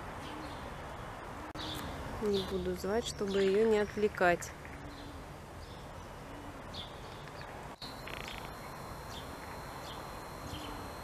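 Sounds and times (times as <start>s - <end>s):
outdoor background noise: 0.0s - 11.0s
small birds chirping: 6.7s - 11.0s
bird rattling trill: 7.8s - 11.0s.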